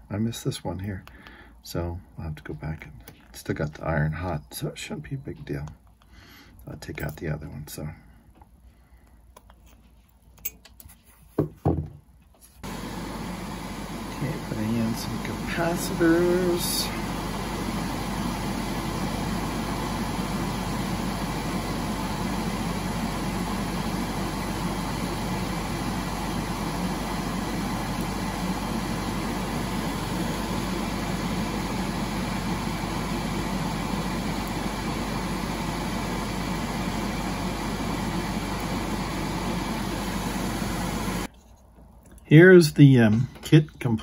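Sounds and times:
fan whirring: 12.6s - 42.1s.

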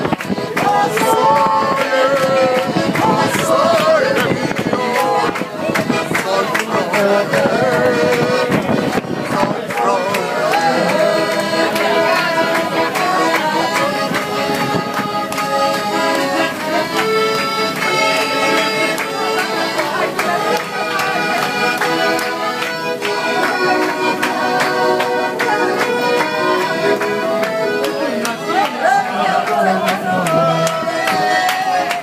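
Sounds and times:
accordion folk dance music: 0.0s - 32.0s.

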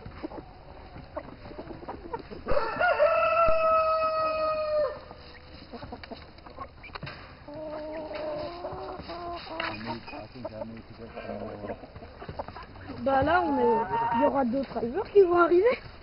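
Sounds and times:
chicken calls: 0.0s - 15.6s
rooster crowing: 2.5s - 5.1s.

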